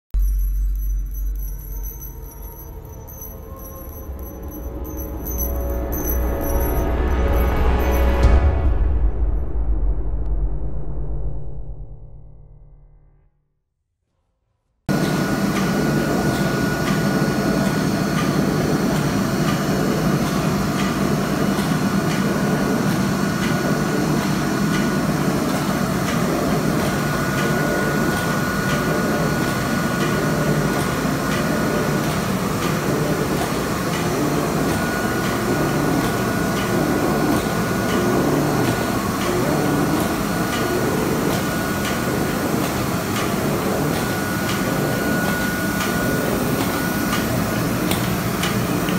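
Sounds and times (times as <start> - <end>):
machine rumble and rattle: 0.1 - 13.1, 14.9 - 48.9
thin high whine: 0.2 - 9.5.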